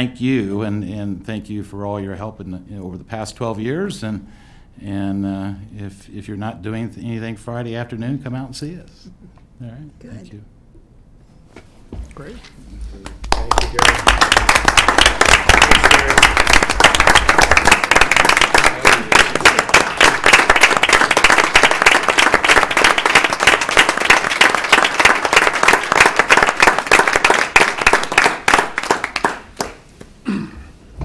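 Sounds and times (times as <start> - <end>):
small crowd applauding: 13.0 - 29.8.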